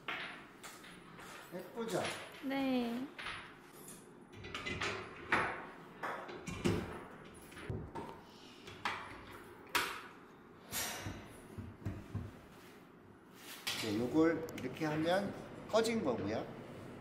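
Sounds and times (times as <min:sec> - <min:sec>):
mixer parts clunking and clicking: 0:04.3 - 0:10.1.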